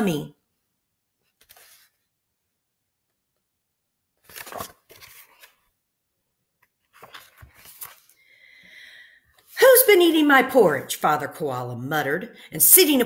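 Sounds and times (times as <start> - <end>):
book pages rustling: 1.2 - 2.2, 4.2 - 5.8, 6.6 - 8.2.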